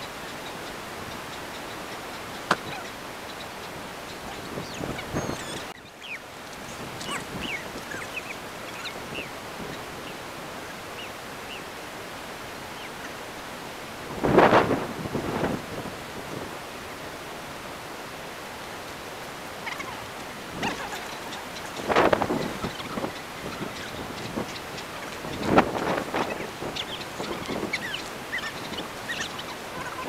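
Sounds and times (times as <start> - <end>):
small birds chirping: 0.0 - 11.8, 19.5 - 30.0
steady outdoor hiss: 0.0 - 30.0.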